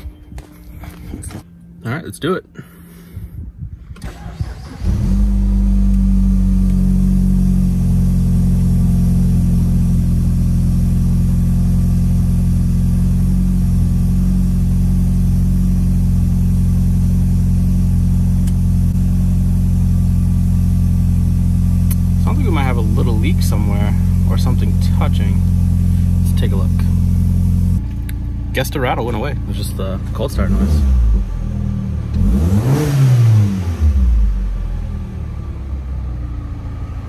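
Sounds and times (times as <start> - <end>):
engine rattle: 2.5 - 32.6
car engine cold start idling: 3.8 - 6.6.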